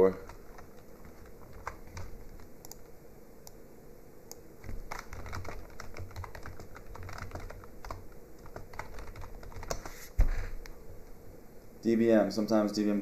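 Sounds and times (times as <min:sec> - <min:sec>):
computer keyboard typing: 0:00.0 - 0:02.9, 0:04.6 - 0:09.9.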